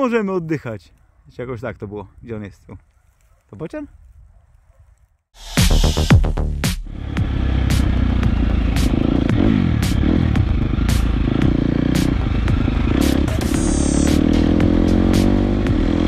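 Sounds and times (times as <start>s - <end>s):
dirt bike engine: 6.8s - 16.0s.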